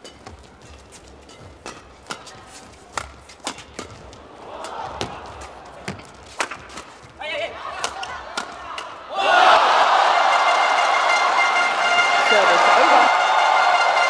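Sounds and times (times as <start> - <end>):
badminton rackets hitting shuttlecock: 0.0 - 9.0
crowd murmur: 12.2 - 13.9.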